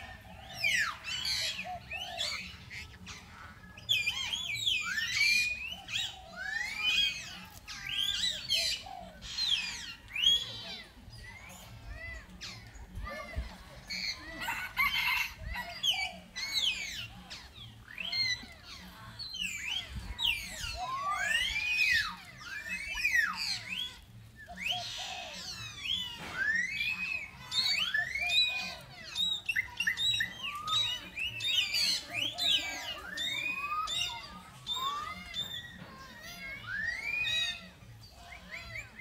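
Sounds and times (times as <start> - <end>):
monkeys squealing and cooing: 0.0 - 39.0.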